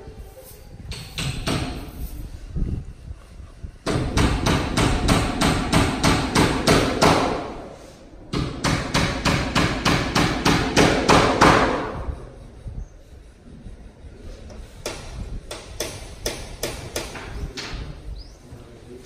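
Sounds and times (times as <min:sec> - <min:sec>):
rapid hammering: 0:00.9 - 0:01.8, 0:03.8 - 0:07.6, 0:08.3 - 0:12.1, 0:14.8 - 0:17.6.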